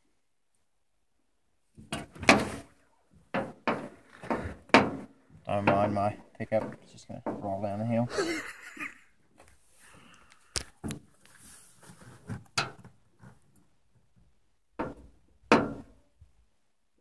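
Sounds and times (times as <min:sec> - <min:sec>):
faint handling noise: 0:09.3 - 0:14.4.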